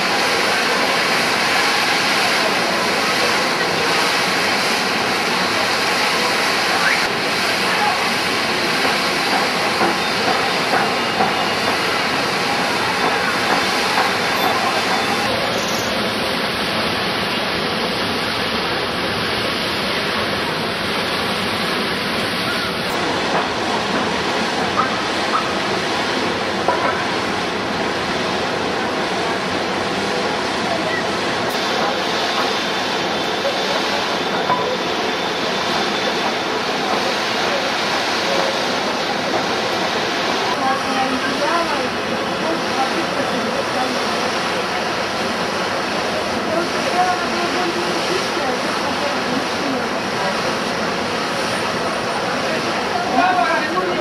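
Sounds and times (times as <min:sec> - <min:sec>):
water jetting from burst pipe: 0:00.0 - 0:30.4.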